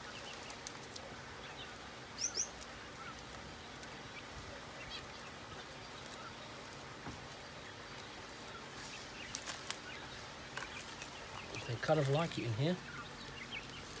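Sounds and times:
faint bird chirps: 0.0s - 6.7s.

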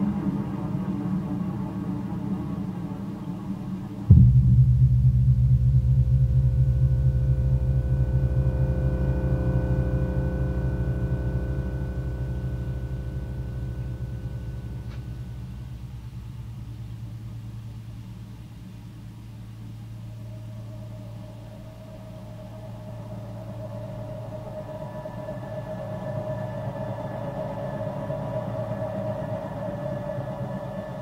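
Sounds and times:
low pulsing synth drone: 0.0s - 31.0s
steady higher synth tone: 19.8s - 31.0s.

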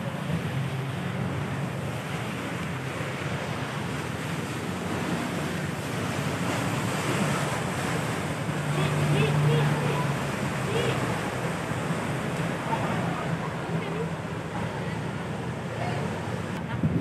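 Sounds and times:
boat engine hum: 0.0s - 17.0s
wind on microphone: 16.4s - 17.0s.

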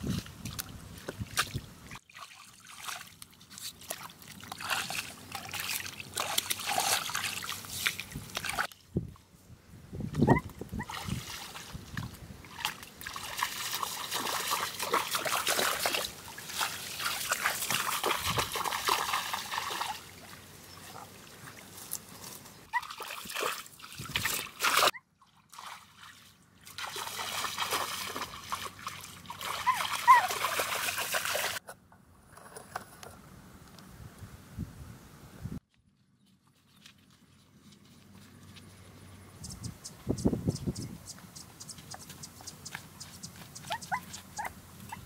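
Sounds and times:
water trickling and splashing: 0.0s - 9.2s, 10.1s - 31.6s.

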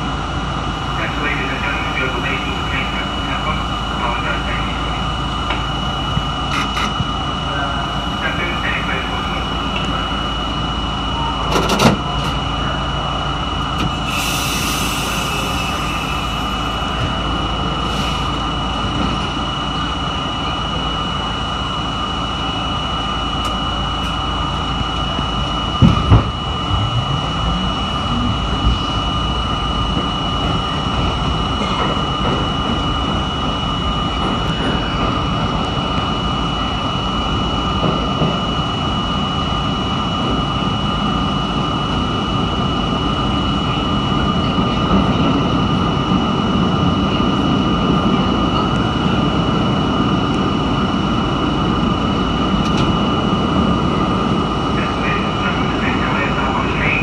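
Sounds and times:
traction motor whine: 0.0s - 57.0s
loud knocks: 25.8s - 26.4s.

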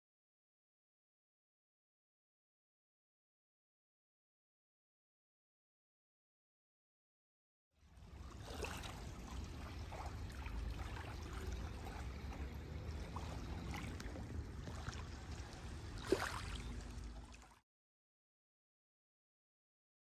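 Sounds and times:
waves lapping on pebbles: 8.0s - 17.6s.

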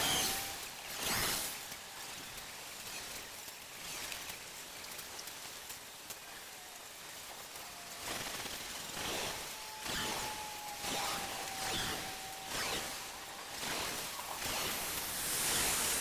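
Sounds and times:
rustling leaves: 0.0s - 16.0s
wind hiss: 0.0s - 16.0s.

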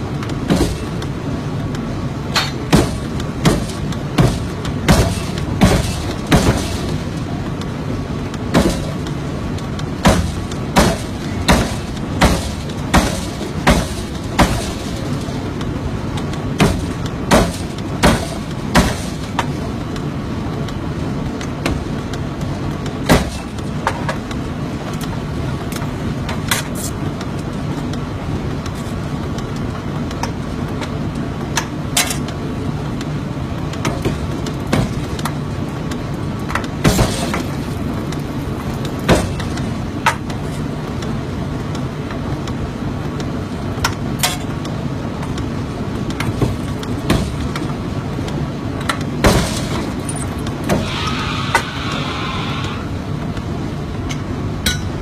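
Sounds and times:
shop machinery hum: 0.0s - 55.0s
forging hammer striking metal: 2.3s - 7.0s, 10.0s - 15.0s, 54.6s - 55.0s.

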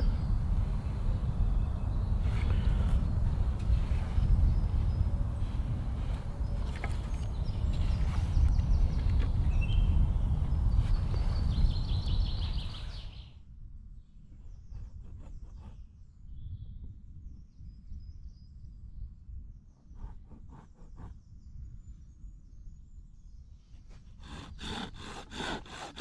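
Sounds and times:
birds chirping: 0.0s - 13.4s.

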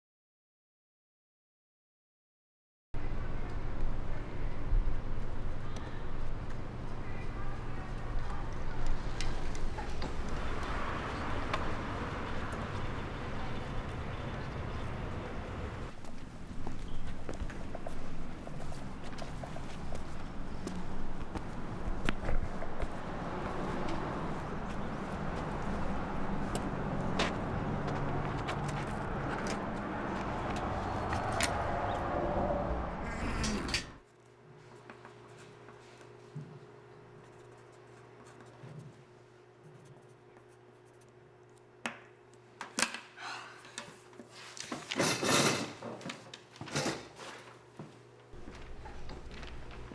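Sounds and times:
steady outdoor rumble: 3.0s - 34.0s
distant traffic rush: 6.1s - 34.0s.

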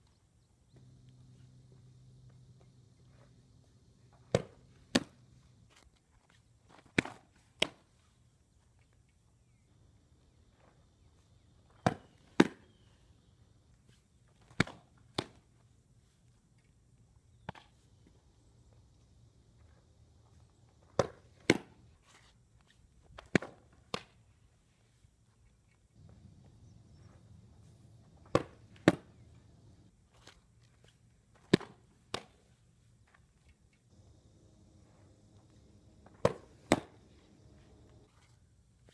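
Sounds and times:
balls smacking into leather mitt: 4.2s - 5.2s, 11.8s - 12.6s, 14.4s - 15.4s, 20.9s - 21.8s, 28.2s - 29.2s, 31.4s - 32.4s, 36.0s - 37.2s
softball pitch release slap: 4.3s - 5.2s, 21.0s - 21.8s, 28.2s - 29.2s, 36.0s - 37.1s
softball popping into leather mitt: 28.2s - 29.2s, 36.1s - 37.0s.

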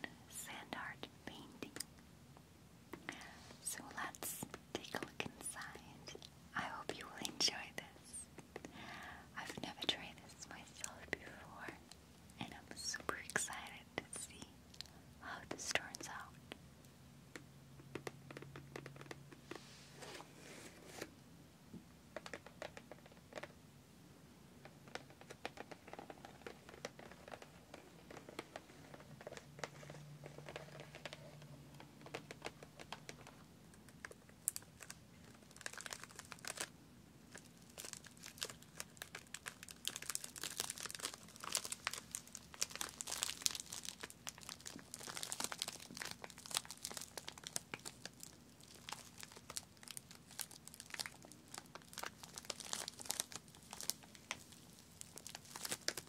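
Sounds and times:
plastic packaging crinkling: 32.0s - 36.7s, 37.3s - 56.0s.

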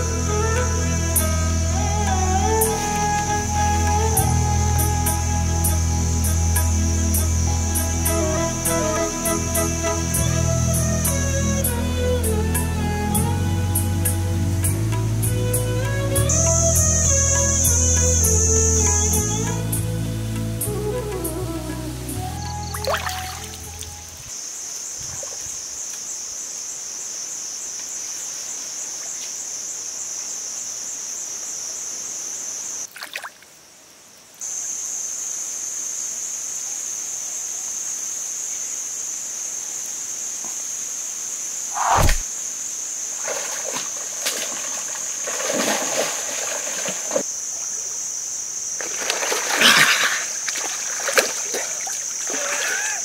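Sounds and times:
steady high-pitched hiss: 0.0s - 53.0s
water splashing and sloshing: 22.7s - 24.3s, 32.8s - 33.6s, 43.1s - 47.8s, 48.7s - 53.0s.

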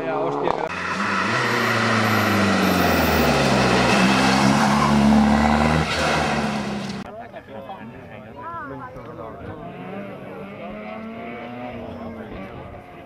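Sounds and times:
rally car passing at high revs: 0.6s - 7.1s, 9.6s - 13.0s.

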